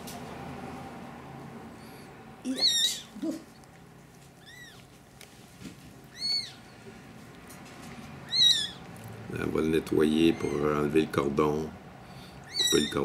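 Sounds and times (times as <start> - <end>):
kitten mewing: 2.4 - 3.6, 4.4 - 4.9, 6.1 - 6.6, 12.4 - 13.0.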